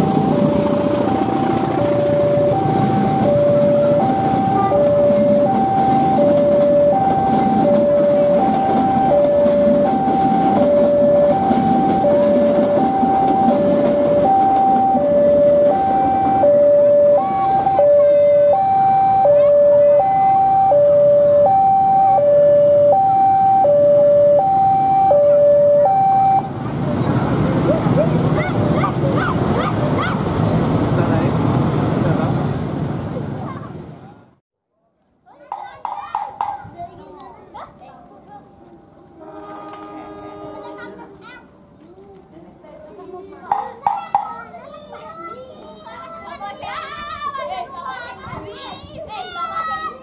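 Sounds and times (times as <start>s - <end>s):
two-tone crossing alarm chime: 0.0s - 26.6s
train carriages rumbling past: 0.0s - 34.4s, 35.5s - 49.3s.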